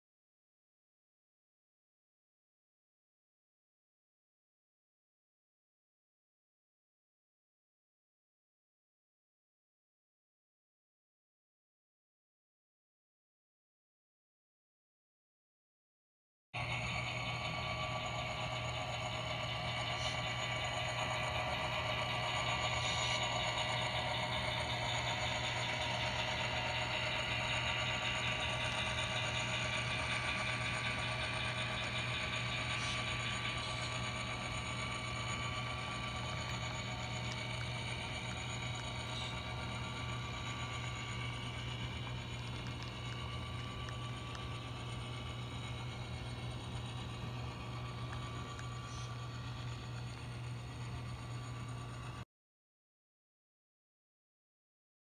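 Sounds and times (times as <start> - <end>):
model train motor hum: 16.6 - 52.2.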